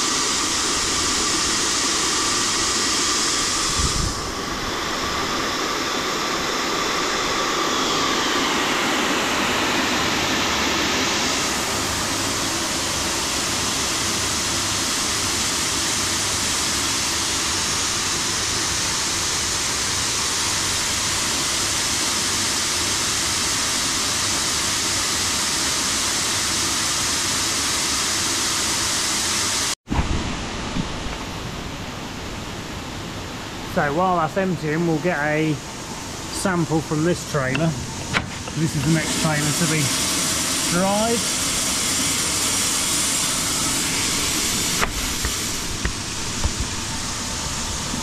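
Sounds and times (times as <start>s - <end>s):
grain dryer elevator running: 0.0s - 48.0s.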